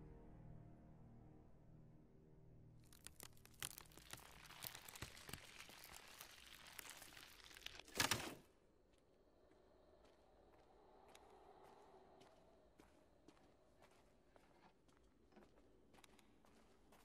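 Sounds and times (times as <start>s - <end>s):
wood cracking: 2.8s - 8.5s.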